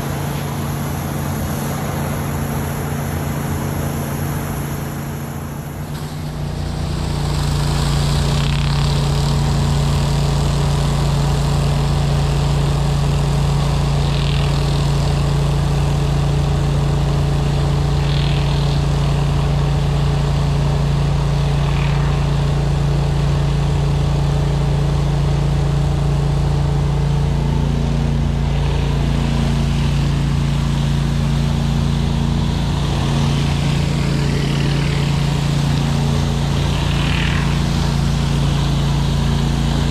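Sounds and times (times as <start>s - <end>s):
pressure washer engine running: 0.0s - 39.9s
water spraying on concrete: 5.7s - 39.9s.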